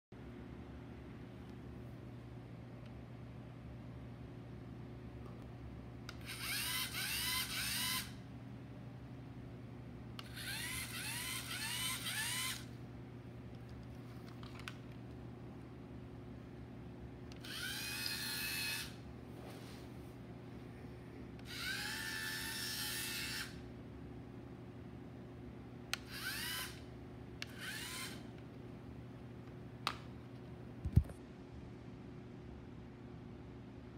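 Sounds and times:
electric motors whirring: 6.1s - 8.2s, 10.2s - 12.7s, 17.3s - 19.0s, 21.4s - 23.6s, 25.9s - 26.8s, 27.4s - 28.4s.

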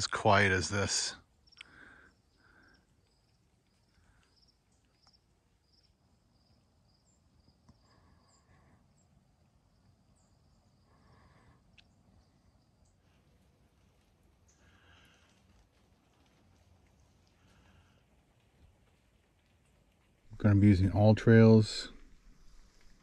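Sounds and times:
cricket chirping: 0.1s - 15.4s.

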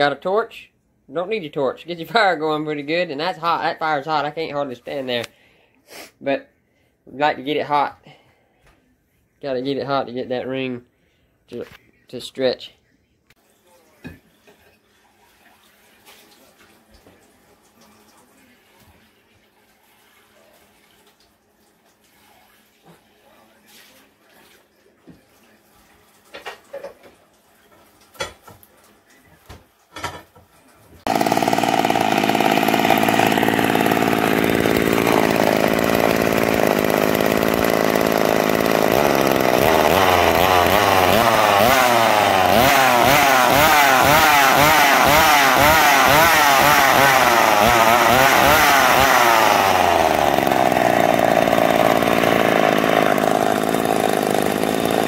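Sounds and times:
chainsaw idling and revving: 31.1s - 55.0s.

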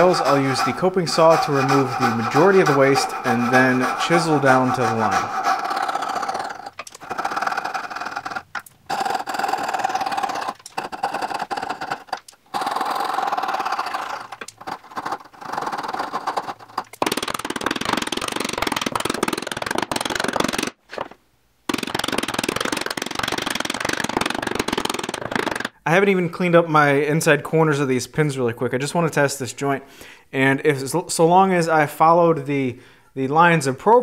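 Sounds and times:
coping saw cutting wood: 0.0s - 16.8s.

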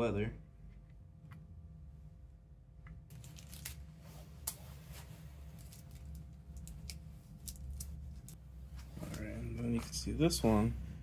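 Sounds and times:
low steady hum: 0.0s - 11.0s
small parts clicking and rustling: 5.6s - 8.4s.

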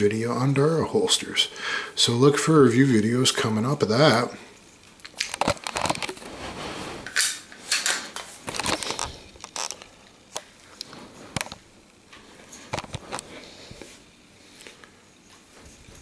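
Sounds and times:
short rustling scrapes: 6.2s - 7.2s.

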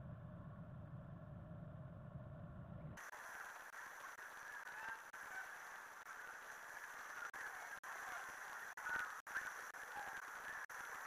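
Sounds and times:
faint bird calls: 6.8s - 11.0s.

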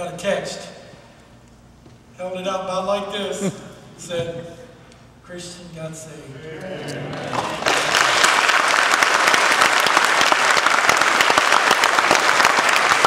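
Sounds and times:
congregation applauding: 7.1s - 13.0s.

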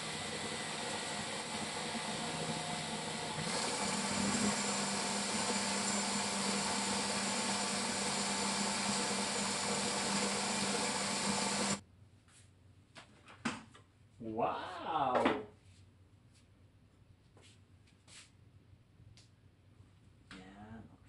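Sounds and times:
electric blender running: 0.0s - 11.8s.

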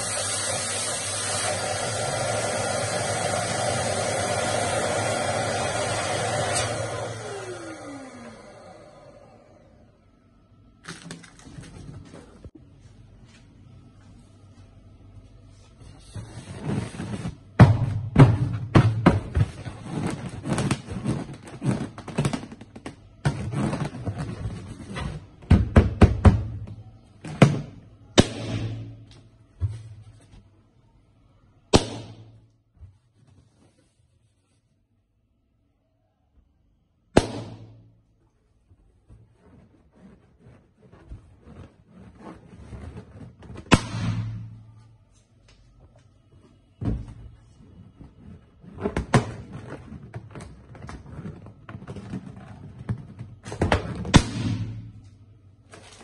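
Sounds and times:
electric balloon pump running: 0.0s - 9.8s
balloons rubbing and squeaking: 15.7s - 17.6s, 19.4s - 25.4s, 38.4s - 44.3s, 47.4s - 53.9s.

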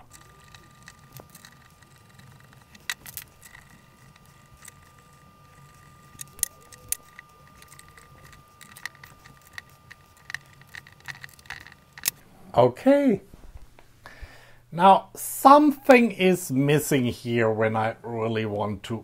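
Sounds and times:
allen key and screws clicking: 0.0s - 12.2s.

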